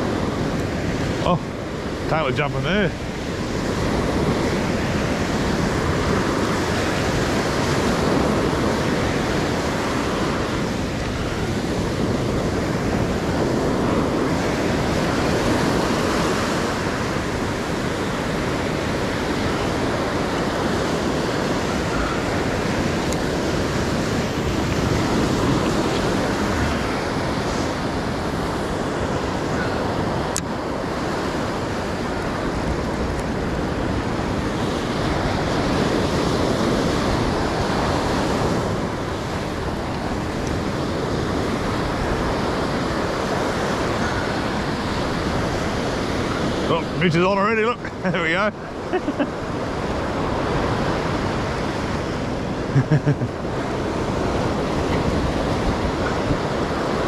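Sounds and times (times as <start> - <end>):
surf breaking on beach: 0.0 - 57.0
wind on microphone: 0.0 - 57.0.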